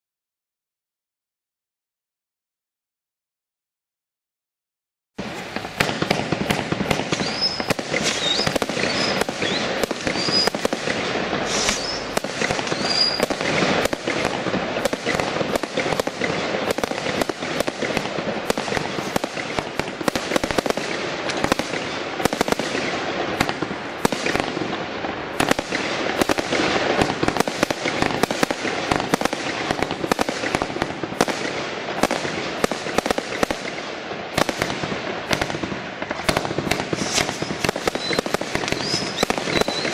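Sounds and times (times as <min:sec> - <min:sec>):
high firework whistles: 0:05.2 - 0:24.4, 0:36.2 - 0:39.9
firework barrage bangs: 0:05.2 - 0:39.9.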